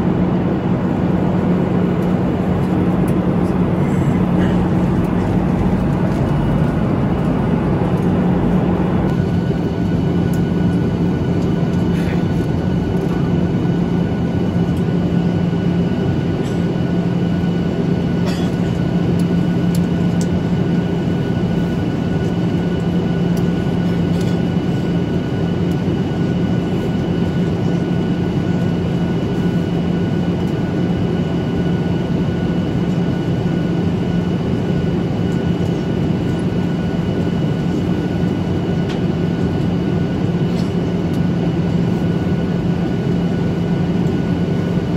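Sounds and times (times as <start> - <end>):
jet engines droning: 0.0 - 44.9
airflow rushing past fuselage: 1.7 - 9.2.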